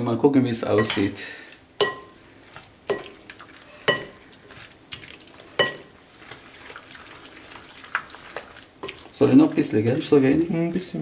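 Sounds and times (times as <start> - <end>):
spatula stirring wet pasta: 1.5 - 11.0
spatula knocking glass bowl: 1.8 - 2.2, 2.9 - 3.2, 3.9 - 4.2, 5.6 - 5.9.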